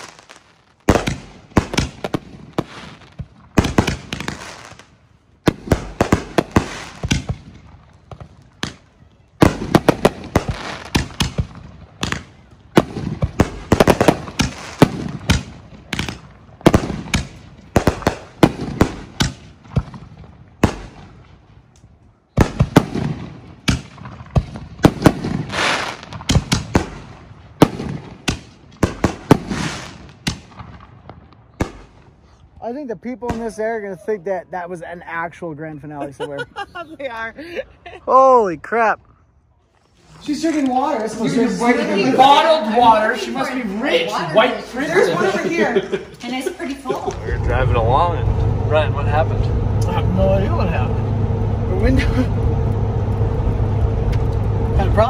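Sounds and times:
fireworks booming: 0.0s - 21.7s, 22.3s - 33.8s, 45.6s - 55.0s
fireworks crackle: 0.0s - 33.8s.

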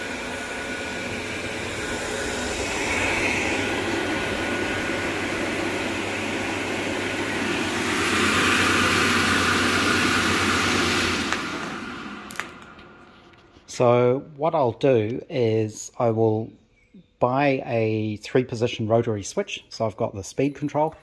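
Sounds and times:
extractor fan running: 0.0s - 15.8s.

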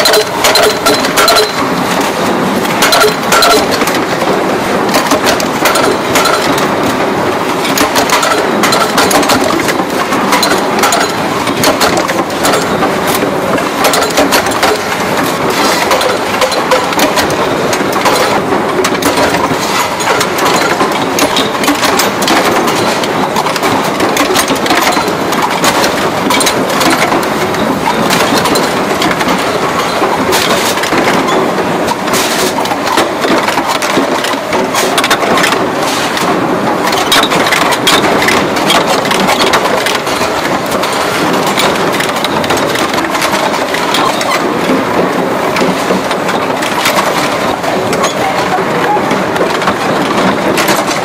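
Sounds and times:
sharp metal knocks: 0.0s - 2.1s, 2.7s - 4.3s, 4.9s - 7.0s, 7.6s - 35.6s
punch presses clattering: 0.0s - 48.5s.

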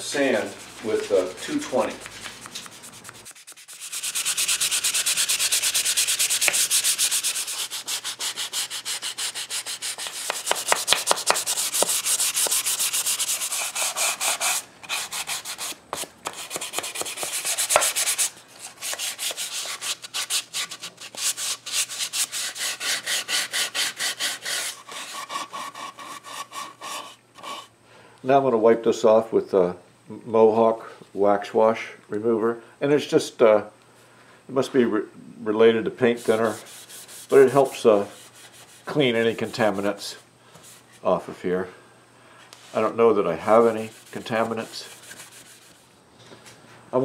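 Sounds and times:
sandpaper sanding wood: 0.1s - 27.7s, 36.1s - 39.9s, 43.4s - 45.8s.

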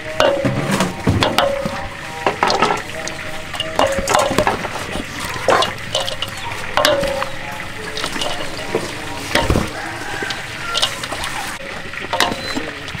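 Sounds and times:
spoon knocking and scraping metal bowl: 0.0s - 12.6s
wet rustling of salad shreds: 2.9s - 11.6s.

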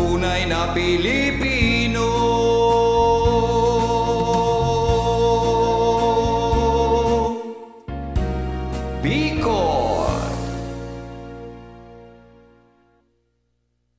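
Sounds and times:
person singing: 0.0s - 10.8s
karaoke backing music: 0.0s - 12.8s.

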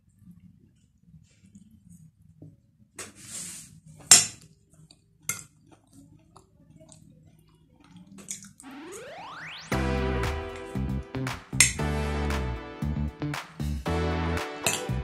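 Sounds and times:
tone sweeping up in pitch: 8.6s - 12.7s.

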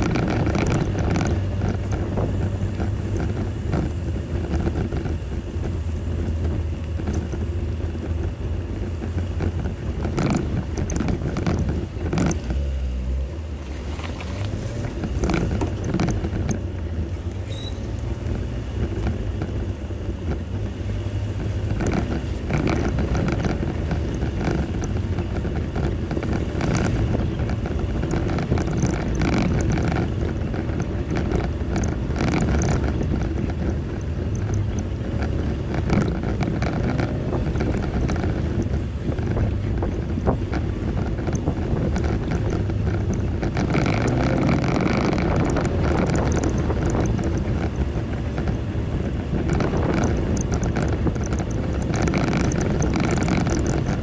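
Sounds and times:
knocks and clicks: 0.0s - 13.0s, 13.6s - 54.0s
engine and drivetrain rumble: 0.0s - 54.0s.

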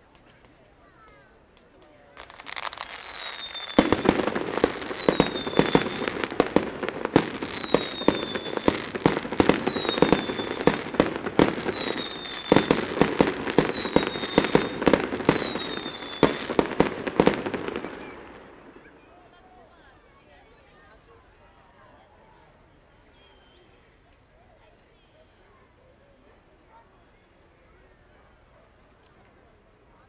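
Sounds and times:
fireworks crackling: 1.7s - 19.0s
fireworks bangs: 2.2s - 19.0s
falling firework whistle: 2.6s - 18.9s.

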